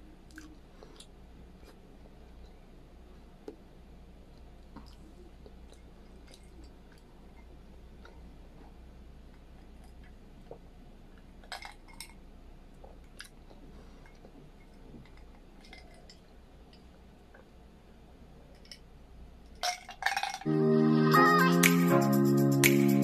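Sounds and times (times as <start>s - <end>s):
swallowing and mouth clicks: 0.3s - 1.1s.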